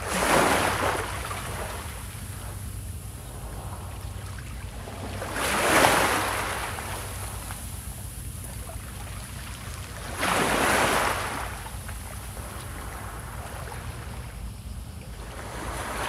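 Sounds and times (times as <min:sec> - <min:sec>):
small waves breaking on pebbles: 0:09.8 - 0:11.6.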